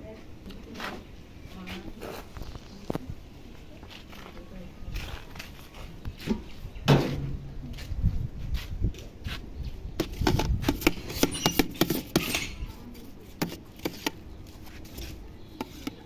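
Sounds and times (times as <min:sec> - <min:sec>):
wooden spatula scraping metal pot: 0:10.1 - 0:16.0.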